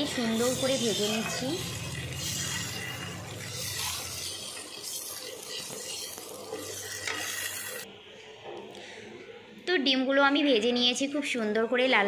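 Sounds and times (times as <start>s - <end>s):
wooden spatula scraping pan: 0.0s - 7.8s
eggs sizzling in hot oil: 0.0s - 7.9s.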